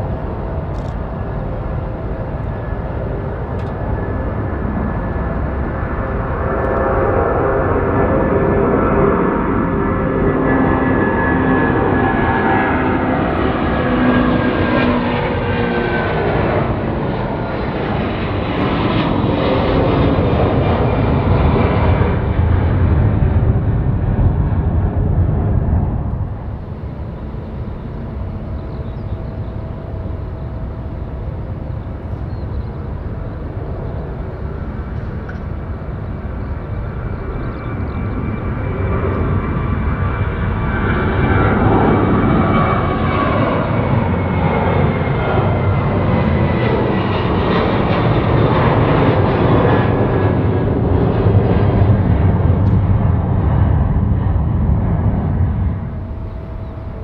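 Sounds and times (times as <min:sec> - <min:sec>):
heavy low rumble: 0:00.0 - 0:14.0, 0:18.5 - 0:43.2, 0:51.6 - 0:57.0
jet engine whine: 0:00.0 - 0:57.0
steady jet noise: 0:00.0 - 0:57.0.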